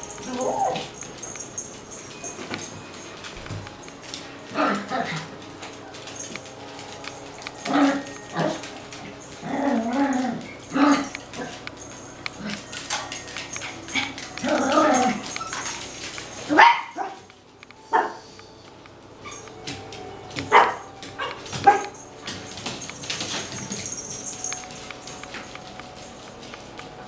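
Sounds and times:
small dogs barking: 16.5s - 17.3s, 20.5s - 22.0s.

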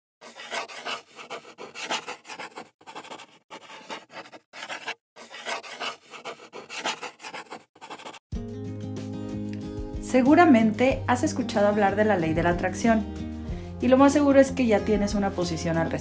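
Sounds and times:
marker scratching on surface: 0.2s - 8.2s.

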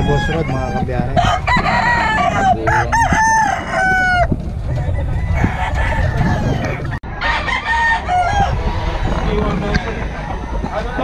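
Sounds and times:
roosters crowing: 0.0s - 11.0s.

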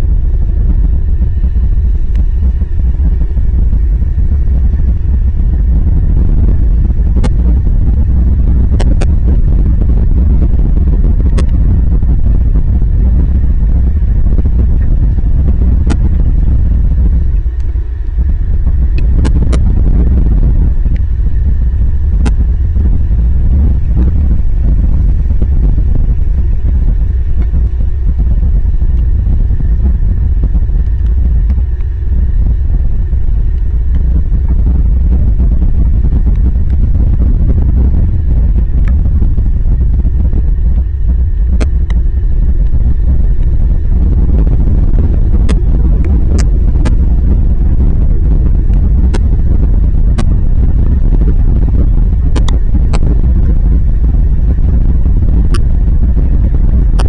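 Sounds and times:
wind rumble on microphone: 0.0s - 57.0s
sharp ticks: 52.3s - 53.1s.

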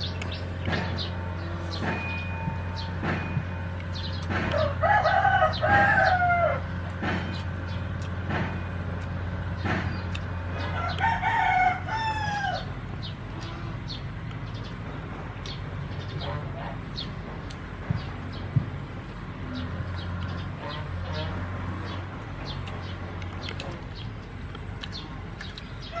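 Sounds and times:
rooster crowing: 4.5s - 6.7s, 10.7s - 12.8s.

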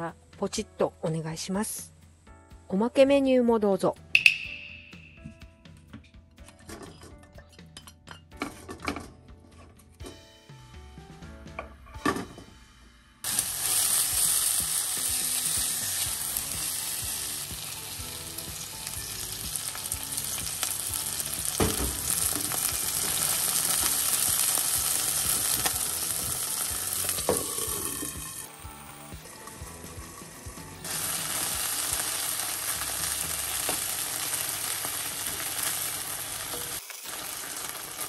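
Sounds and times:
chicken sizzling in frying pan: 13.2s - 38.0s.

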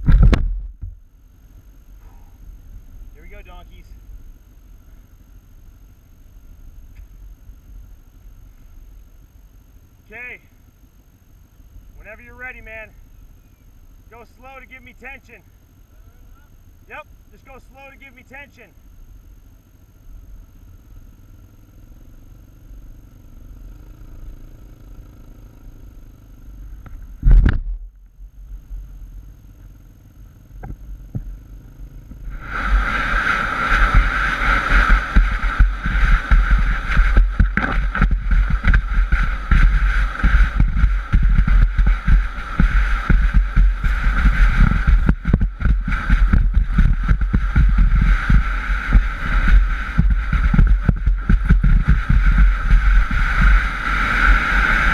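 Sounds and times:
board sliding over sand: 32.2s - 54.9s
wind buffeting microphone: 32.2s - 54.9s.

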